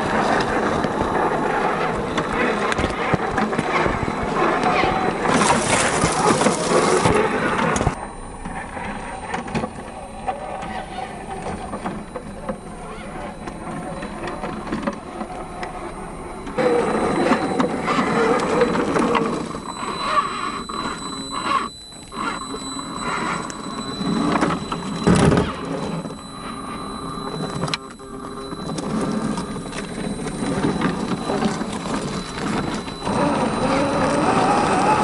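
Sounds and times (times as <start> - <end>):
toy car motor whining: 0.0 - 8.2, 8.8 - 35.0
tyres grinding over rock: 0.2 - 8.0, 28.6 - 35.0.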